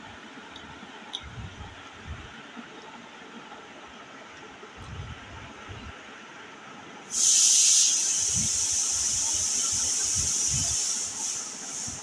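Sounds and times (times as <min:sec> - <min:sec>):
loud steady hiss: 0:07.0 - 0:12.0.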